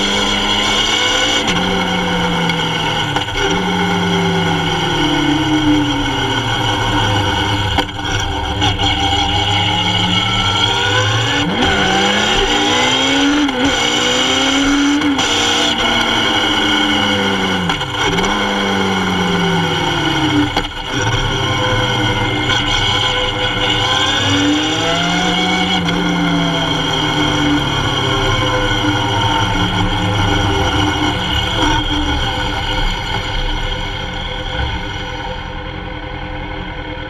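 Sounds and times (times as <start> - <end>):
motorcycle engine accelerating: 0.0 - 35.8.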